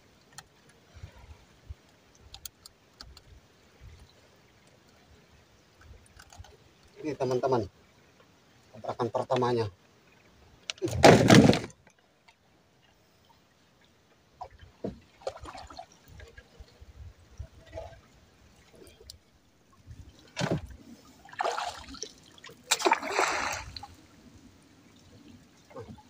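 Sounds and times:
water splashing and dripping: 0:14.4 - 0:16.7, 0:17.6 - 0:24.0.

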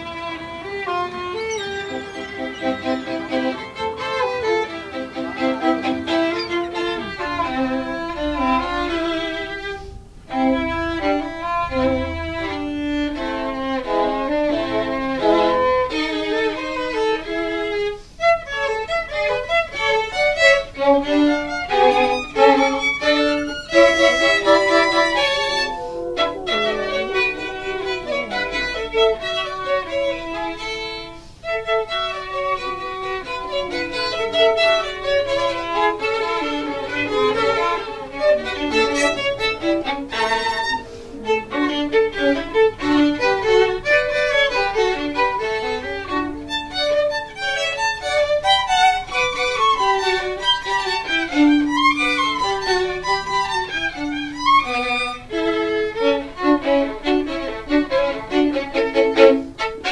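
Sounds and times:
fast instrumental melody: 0:01.4 - 0:06.9, 0:23.2 - 0:29.5.

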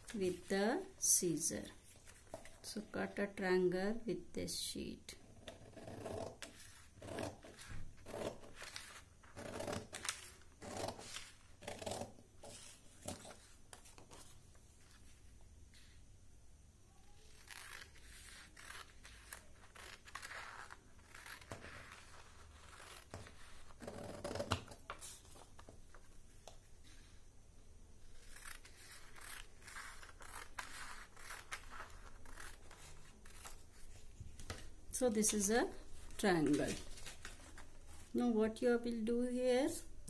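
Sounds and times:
scissors cutting paper: 0:17.2 - 0:24.6, 0:28.2 - 0:33.5.

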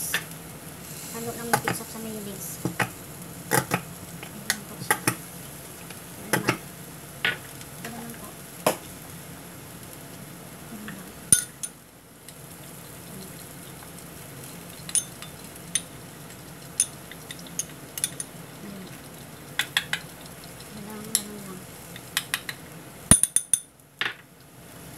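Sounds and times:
patties sizzling in oil: 0:00.0 - 0:24.9
utensil clinking ceramic bowl: 0:14.9 - 0:15.9, 0:16.8 - 0:18.4.

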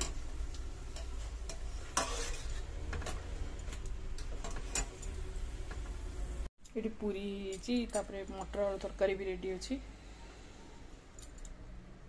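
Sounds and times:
oil sizzling: 0:00.0 - 0:06.5
skimmer scraping against pan: 0:00.9 - 0:03.4.

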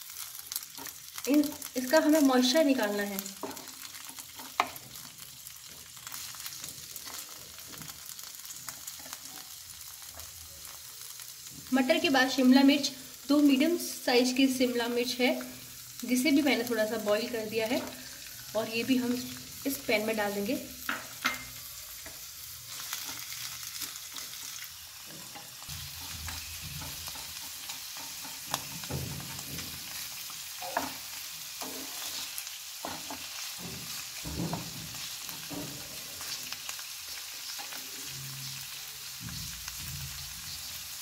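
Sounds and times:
vegetables sizzling in oil: 0:00.0 - 0:41.0
spatula scraping a pan: 0:03.4 - 0:05.2, 0:20.8 - 0:36.5.

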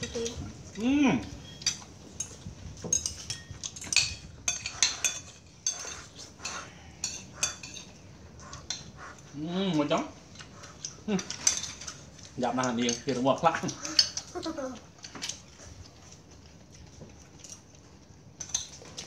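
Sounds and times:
spoons clinking on ceramic bowls: 0:01.4 - 0:08.0, 0:12.6 - 0:13.2.

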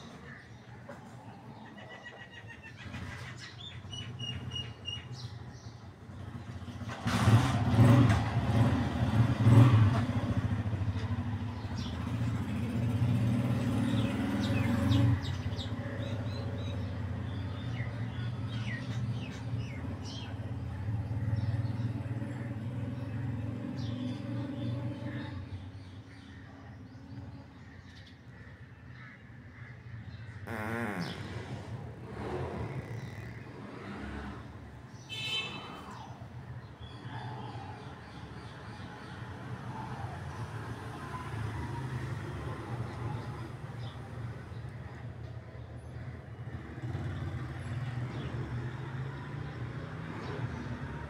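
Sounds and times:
birds chirping: 0:00.0 - 0:06.8, 0:10.3 - 0:39.7.

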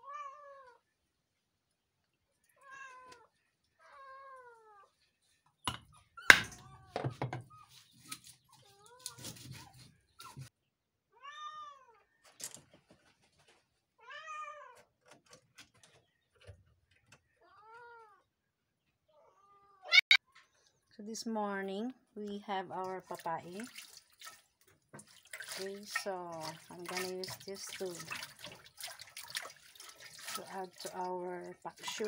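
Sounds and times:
cat meowing: 0:02.5 - 0:04.9, 0:11.1 - 0:12.0, 0:19.2 - 0:20.2.

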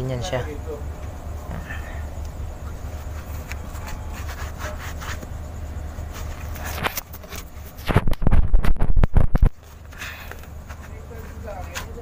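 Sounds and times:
steady low hum: 0:00.0 - 0:12.0
hand rubbing metal bore: 0:02.6 - 0:07.9.

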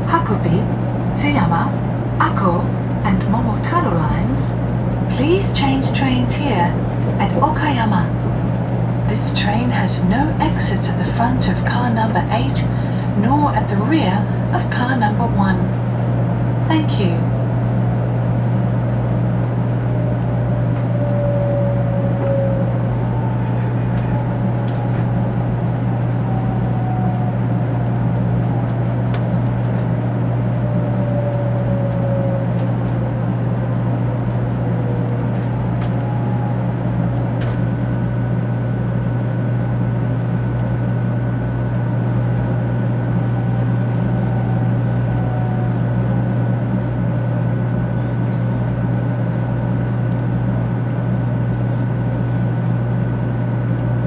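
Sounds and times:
train cabin hum and rumble: 0:00.0 - 0:54.0
falling train whines: 0:05.0 - 0:39.2, 0:41.0 - 0:49.9
steady high tone: 0:16.6 - 0:38.3, 0:41.9 - 0:48.2.

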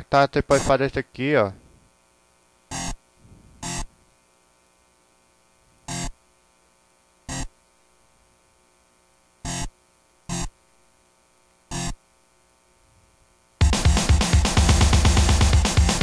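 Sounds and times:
faint steady hum: 0:00.0 - 0:15.9
distorted guitar stabs: 0:00.5 - 0:00.9, 0:13.6 - 0:16.0.

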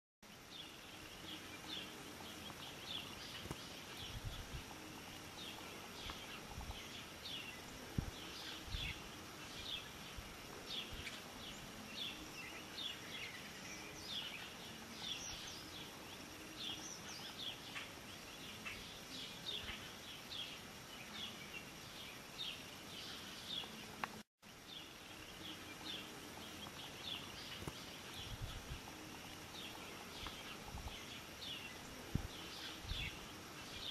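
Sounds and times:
small birds chirping: 0:00.2 - 0:33.9
steady hiss: 0:00.2 - 0:33.9
soft low thumps: 0:07.9 - 0:08.9.

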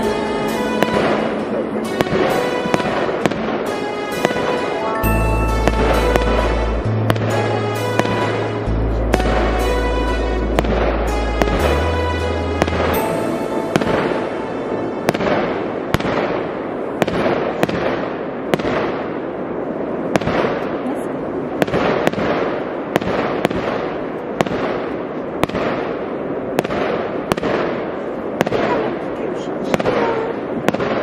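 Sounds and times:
distant fireworks crackling: 0:00.0 - 0:31.0
fireworks sharp bangs: 0:00.0 - 0:31.0.

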